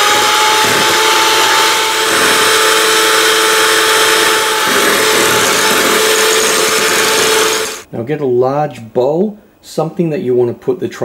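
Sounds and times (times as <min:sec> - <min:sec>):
beaters whipping cream: 0:00.0 - 0:07.9
electric hand mixer whining: 0:00.0 - 0:07.9.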